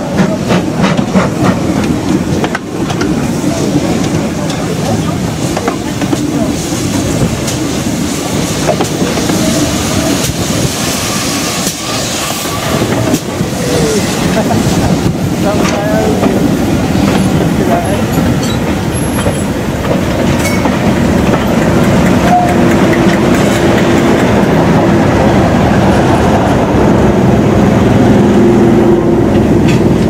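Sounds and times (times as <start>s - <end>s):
train wheels clicking over rail joints: 0.0s - 24.8s, 29.3s - 30.0s
diesel locomotive engine hum: 0.0s - 30.0s.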